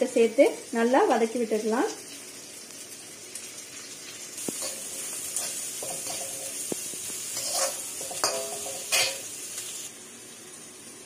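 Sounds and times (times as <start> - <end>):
vegetables sizzling in hot oil: 0.0 - 11.0
metal spatula scraping pan: 4.4 - 9.4.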